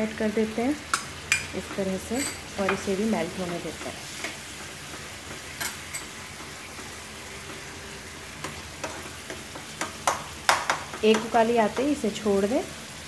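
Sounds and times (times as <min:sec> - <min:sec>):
faint sizzle: 0:00.0 - 0:13.0
spoon scraping a pan: 0:00.9 - 0:06.9.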